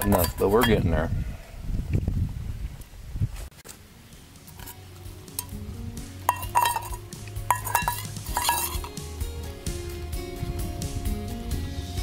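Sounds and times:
metal spoon stirring in pot: 0:00.0 - 0:00.8, 0:04.5 - 0:05.6, 0:06.2 - 0:09.0
spoon clinking against pot: 0:00.0 - 0:00.8, 0:06.3 - 0:09.0
soft background music: 0:03.8 - 0:12.0.

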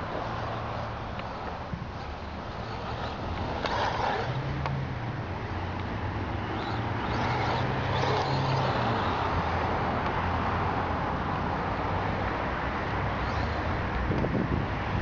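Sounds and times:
electric motor whining: 0:00.0 - 0:10.1
steady rushing noise: 0:00.0 - 0:15.0.

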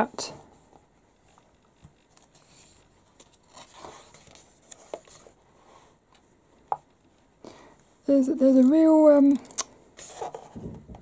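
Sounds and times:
magazine page rustling: 0:01.3 - 0:05.4.

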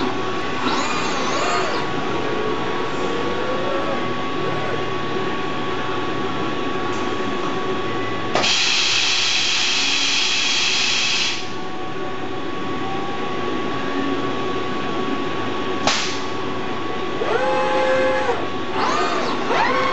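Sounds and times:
robot servo motors whining: 0:00.0 - 0:01.9, 0:17.2 - 0:19.9
milling machine whine: 0:00.0 - 0:15.8, 0:16.4 - 0:19.9
sharp click: 0:15.9 - 0:16.2.

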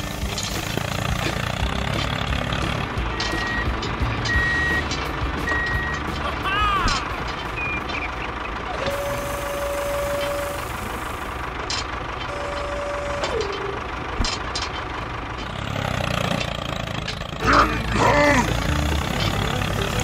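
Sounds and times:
deep rumble: 0:00.0 - 0:20.0
heavy truck engine running: 0:00.0 - 0:20.0
long steady beeps: 0:03.1 - 0:06.1, 0:07.6 - 0:11.3, 0:12.3 - 0:14.0.

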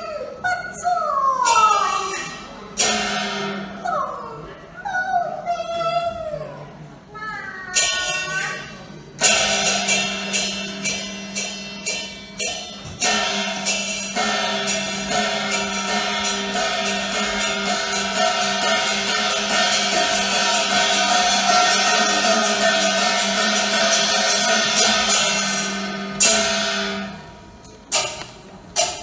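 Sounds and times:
ringing percussion strikes: 0:01.4 - 0:04.0, 0:07.8 - 0:29.0
sustained melodic instruments: 0:08.1 - 0:28.0.

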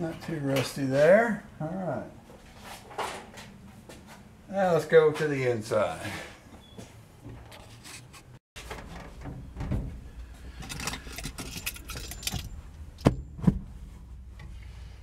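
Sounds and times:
metallic clinking of hand tools: 0:10.6 - 0:12.7.

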